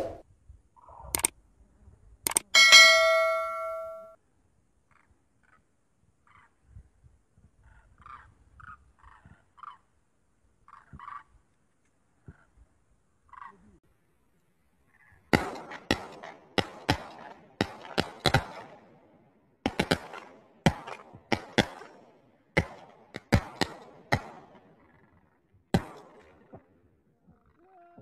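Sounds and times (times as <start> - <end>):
shotgun shots: 15.3 - 19.0, 19.6 - 24.8, 25.7 - 26.5.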